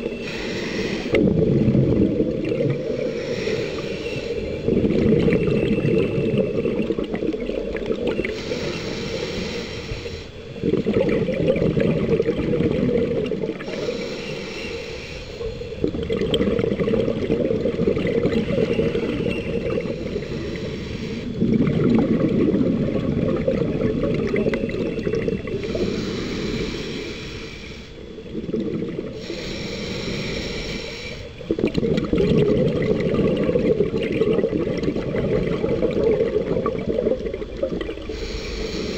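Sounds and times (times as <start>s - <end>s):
regulator hissing inhalations: 0.0s - 1.2s, 2.7s - 6.8s, 8.2s - 10.7s, 13.6s - 15.9s, 17.8s - 21.5s, 24.9s - 31.5s, 37.9s - 38.9s
exhaled bubbles rumbling: 0.0s - 14.4s, 15.4s - 26.8s, 27.9s - 30.2s, 31.2s - 38.9s.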